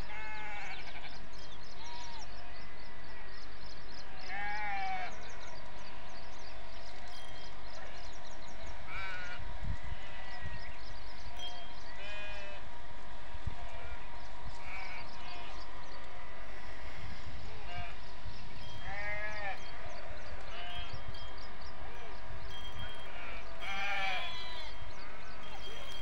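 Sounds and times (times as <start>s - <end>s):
bleat-like animal calls: 0.0s - 1.1s, 11.4s - 12.6s, 18.8s - 19.6s, 23.1s - 24.8s.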